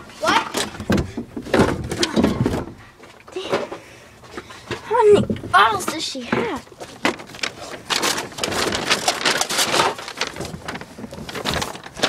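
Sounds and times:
bottles and cans clattering: 0.2 - 2.8, 5.1 - 12.0
bag crinkling: 6.9 - 12.0.

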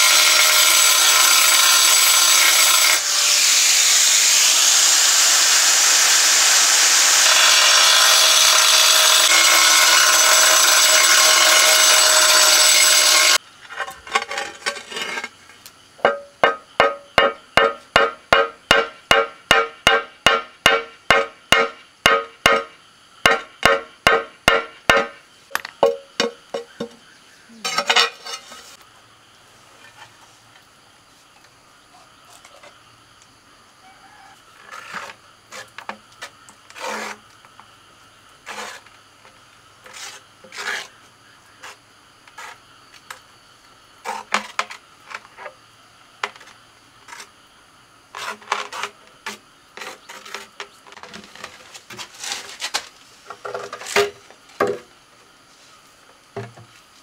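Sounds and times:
scraping: 6.8 - 17.3.

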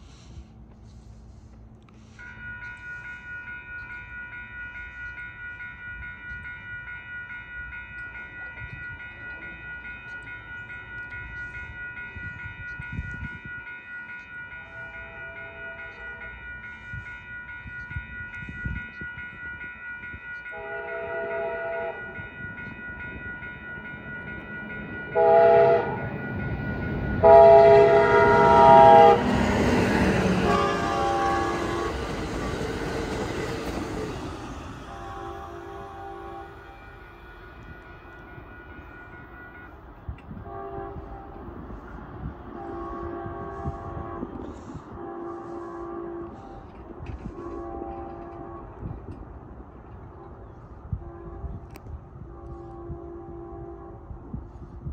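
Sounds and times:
train wheels roaring on rail: 0.0 - 54.9
crossing bell ringing: 1.4 - 54.0
train horn blasts: 14.6 - 16.3, 20.5 - 22.4, 25.0 - 26.3, 27.1 - 54.9.

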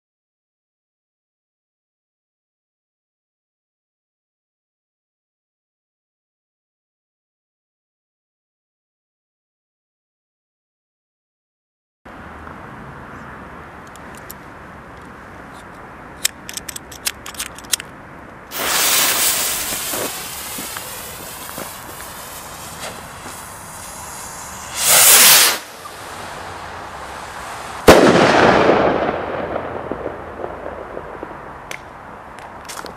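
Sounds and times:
firework bang: 18.5 - 26.1, 27.8 - 31.7
short loud hiss: 18.5 - 26.3
rocket motor whooshing: 18.5 - 28.5
firework crackles: 18.5 - 32.9.

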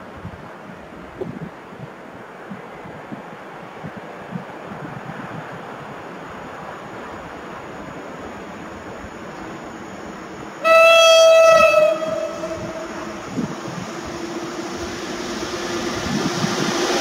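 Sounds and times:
train approaching: 0.5 - 17.0
locomotive horn blast: 10.6 - 14.6.

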